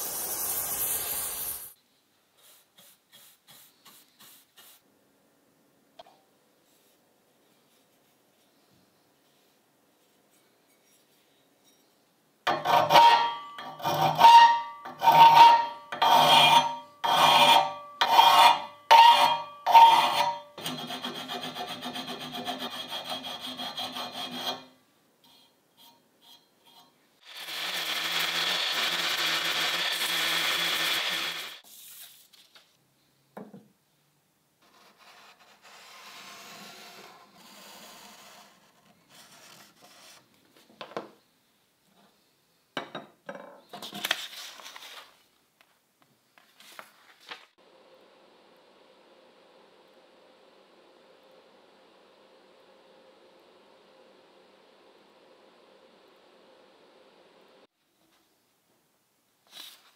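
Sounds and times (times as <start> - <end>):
hand file rasping on metal: 15.0 - 24.7
rotary sanding disc on metal: 15.1 - 24.7, 27.3 - 31.6.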